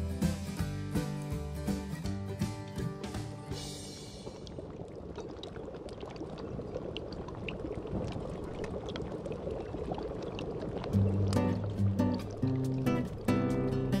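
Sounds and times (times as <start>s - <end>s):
music: 0.0s - 4.4s, 11.0s - 14.0s
broth bubbling at a boil: 2.7s - 14.0s.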